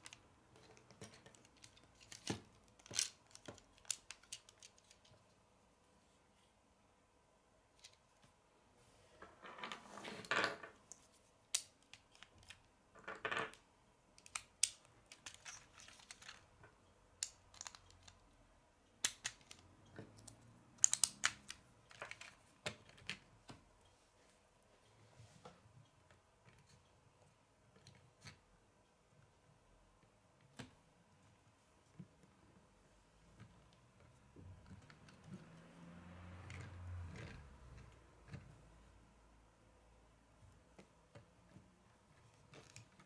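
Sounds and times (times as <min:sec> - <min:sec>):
plastic parts scraping: 0:00.0 - 0:05.3
plastic bricks clicking and rubbing: 0:00.0 - 0:05.4, 0:14.2 - 0:18.3, 0:19.0 - 0:23.3.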